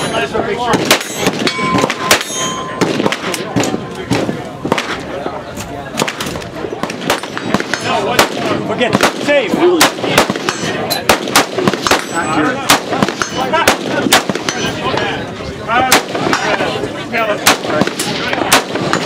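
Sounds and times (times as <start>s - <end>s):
voices chattering: 0.0s - 19.0s
gunshots: 0.6s - 5.1s, 5.9s - 14.8s, 15.8s - 16.8s, 17.4s - 19.0s.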